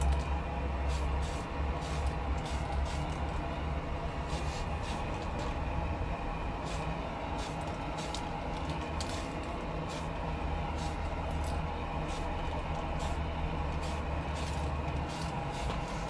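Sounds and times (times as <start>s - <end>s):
steady low rumble: 0.0s - 16.0s
spray paint can hissing: 0.9s - 3.2s, 6.6s - 8.3s, 9.0s - 10.1s, 10.7s - 11.0s, 12.0s - 12.3s, 13.8s - 16.0s.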